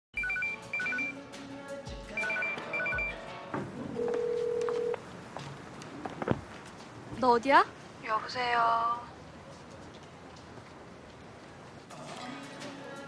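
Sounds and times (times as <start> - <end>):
phone ringtone beeps: 0.2 - 1.2, 2.2 - 3.2, 4.0 - 5.0.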